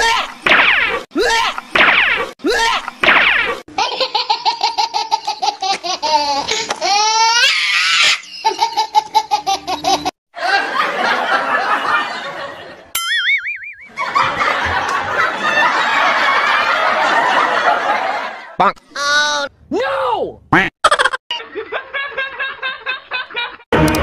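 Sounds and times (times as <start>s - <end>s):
high ha-ha laughter: 3.7s - 12.9s, 13.9s - 18.6s, 20.8s - 23.7s
many people laughing: 8.4s - 12.9s, 13.9s - 18.6s, 20.9s - 23.7s.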